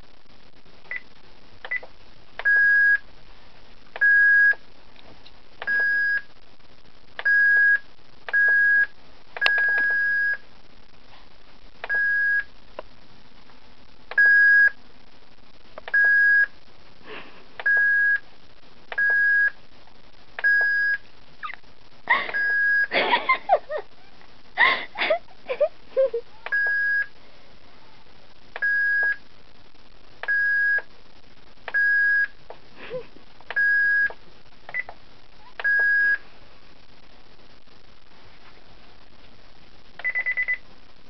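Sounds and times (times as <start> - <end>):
fax machine beeping: 2.4 - 3.0, 7.2 - 10.4, 11.9 - 12.5, 14.1 - 14.8, 15.9 - 16.5, 17.6 - 18.2, 19.0 - 19.6, 20.4 - 21.0, 22.2 - 22.9, 35.6 - 36.2, 40.0 - 40.6.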